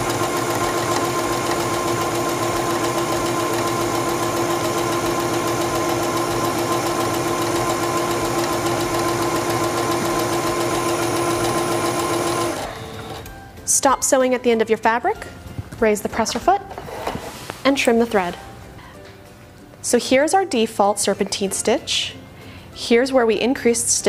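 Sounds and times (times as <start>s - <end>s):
sewing machine running: 0.0s - 13.3s.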